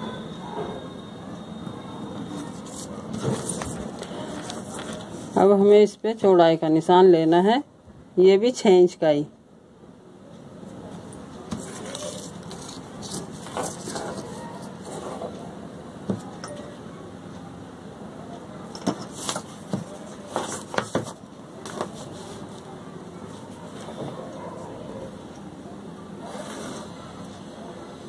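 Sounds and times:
paper rustling: 0:02.4 - 0:05.4, 0:11.5 - 0:15.3, 0:19.1 - 0:22.7.

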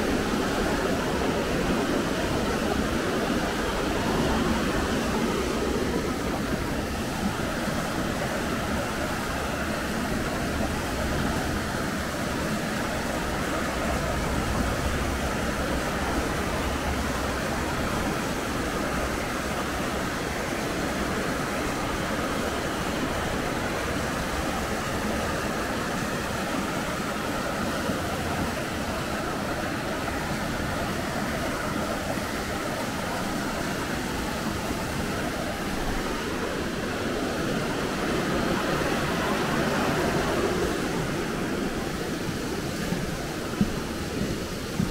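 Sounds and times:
stream water rushing: 0:00.0 - 0:44.9.

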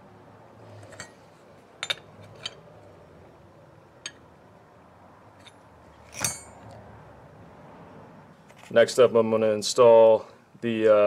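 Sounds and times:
metallic clicks and clinks: 0:05.4 - 0:06.8.

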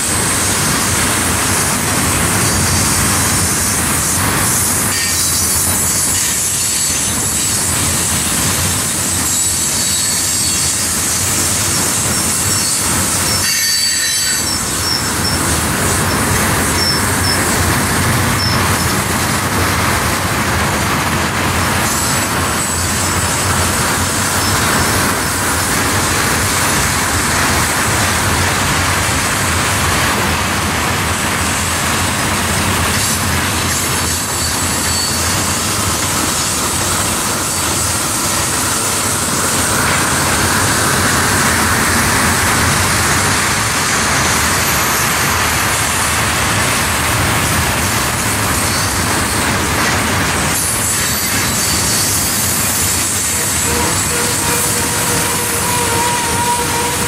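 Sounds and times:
train wheels rumbling on rail: 0:00.0 - 0:57.0
high wheel squeal: 0:02.4 - 0:08.2, 0:08.8 - 0:19.0, 0:21.8 - 0:25.7, 0:33.0 - 0:36.6, 0:48.1 - 0:57.0.

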